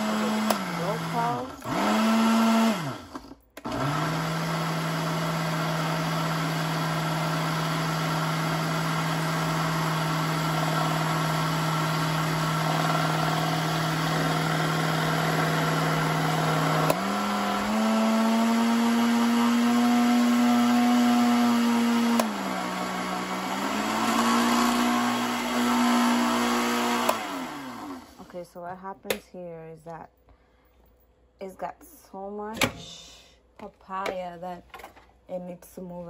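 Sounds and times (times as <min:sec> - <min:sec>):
blender motor running: 0:00.0 - 0:28.3.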